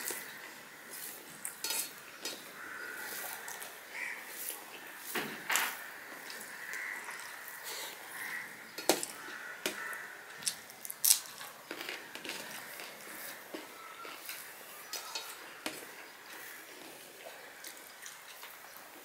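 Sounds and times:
food squishing by hand: 0:00.0 - 0:19.0
chewing: 0:06.2 - 0:18.9.

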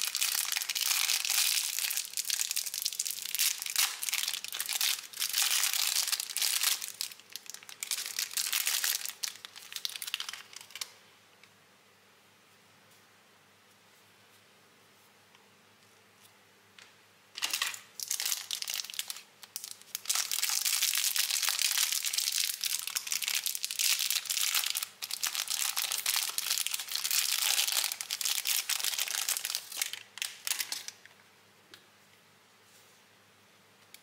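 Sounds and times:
plastic wrapper crinkling: 0:00.0 - 0:11.0, 0:17.4 - 0:31.1.

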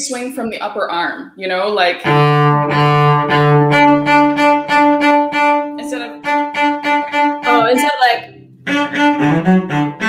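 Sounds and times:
cello bow strokes: 0:02.0 - 0:10.0.

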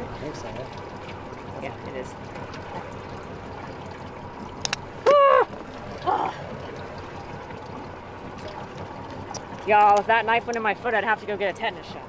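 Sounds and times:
water moving around boat: 0:00.0 - 0:12.0
high voice-like cry: 0:05.0 - 0:06.4.

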